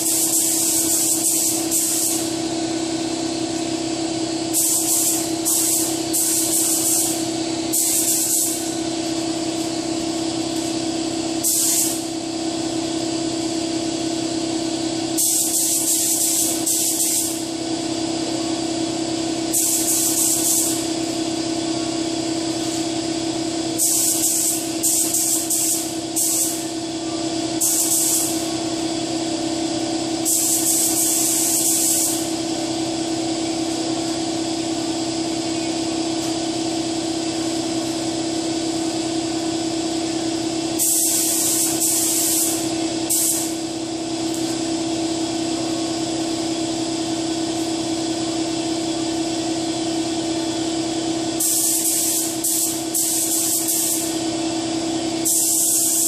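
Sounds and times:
spray gun hissing: 0.0 - 2.8, 4.4 - 12.2, 15.2 - 17.6, 19.4 - 21.2, 23.7 - 26.7, 27.6 - 29.0, 30.2 - 32.6, 40.6 - 43.8, 51.3 - 54.3, 55.1 - 56.0
steady low hum: 0.0 - 56.0.

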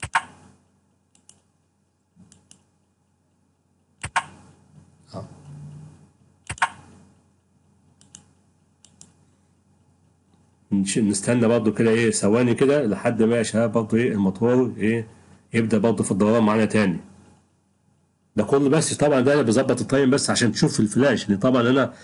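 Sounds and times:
computer mouse clicks: 0.0 - 0.5, 1.1 - 1.5, 2.2 - 2.7, 4.0 - 4.4, 6.4 - 7.2, 7.9 - 9.2
low hum: 4.0 - 9.2.

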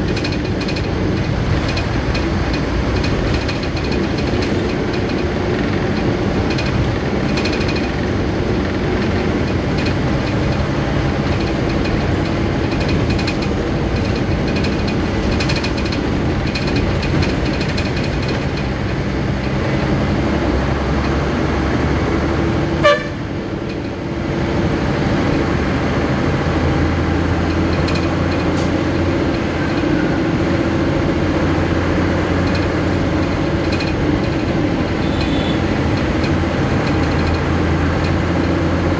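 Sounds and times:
vehicle engines passing: 0.0 - 38.9
car horn toots: 22.8 - 23.3, 35.0 - 35.6.

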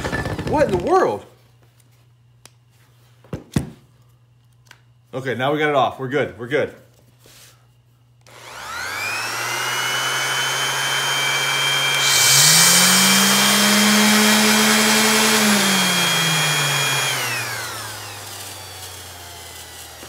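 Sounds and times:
low hum with airy hiss: 0.6 - 8.4
sander motor high-pitched whine: 8.3 - 20.0.

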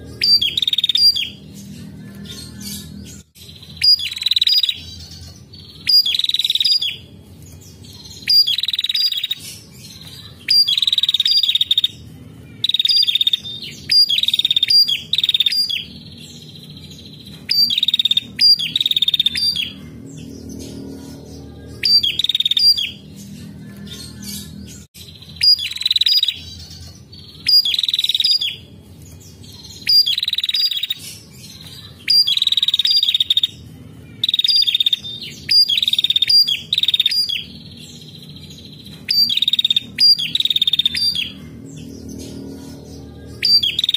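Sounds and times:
songbird trilling: 0.2 - 1.4, 8.1 - 9.4, 29.8 - 31.0, 34.2 - 38.2, 39.1 - 41.9, 43.4 - 43.9.

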